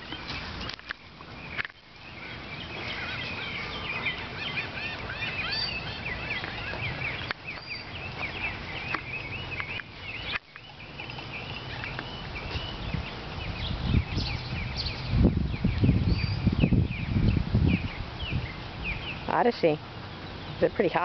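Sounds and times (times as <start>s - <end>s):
birds chirping and chattering: 0.0s - 21.0s
low wind rumble on microphone: 5.0s - 21.0s.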